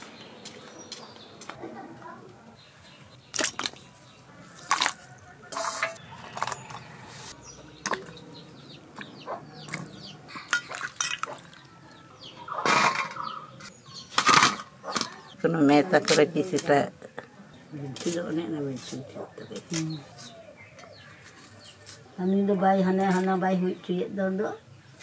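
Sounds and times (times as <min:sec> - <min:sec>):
water splashing in steel bowl: 0:03.3 - 0:03.9, 0:04.6 - 0:06.6, 0:09.7 - 0:11.8
vegetables clinking in steel dishes: 0:04.7 - 0:07.0, 0:10.5 - 0:11.6, 0:12.6 - 0:13.4.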